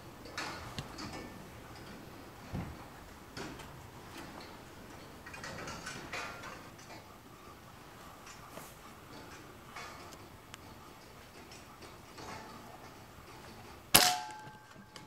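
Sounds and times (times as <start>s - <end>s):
faint clicks and taps: 0.2s - 7.1s.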